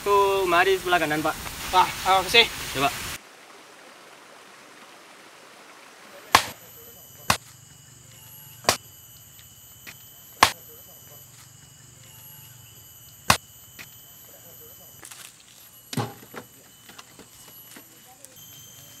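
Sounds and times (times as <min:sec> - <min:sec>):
faint high-pitched drone: 0:06.2 - 0:19.0
hand tool chopping blows: 0:06.4 - 0:06.6, 0:09.8 - 0:10.6.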